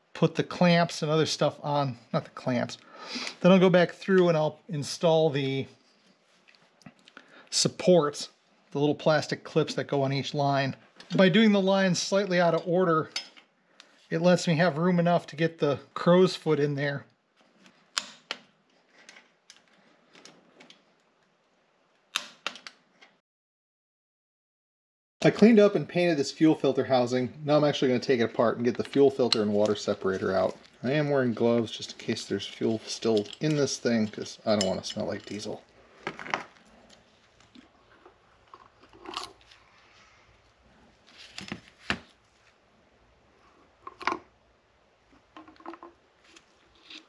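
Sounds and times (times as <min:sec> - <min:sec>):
faint handling noise: 0:26.4 - 0:42.7, 0:45.0 - 0:47.0
light metal clicks and scrapes: 0:31.4 - 0:35.7, 0:45.4 - 0:47.0.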